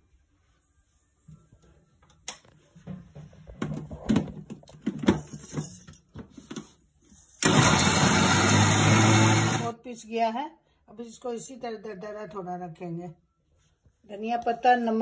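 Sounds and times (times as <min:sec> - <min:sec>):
grinder motor running: 0:07.4 - 0:09.7.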